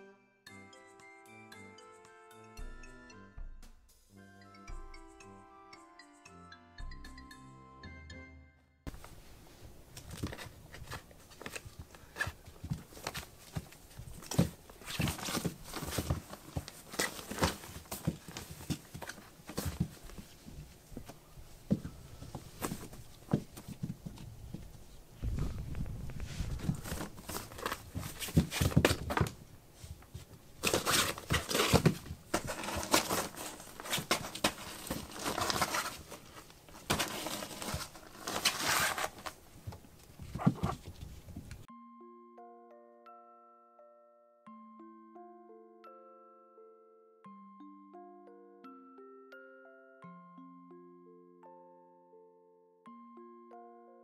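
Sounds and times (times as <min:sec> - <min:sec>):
fabric tent rustling: 0:08.9 - 0:29.2, 0:29.8 - 0:41.7.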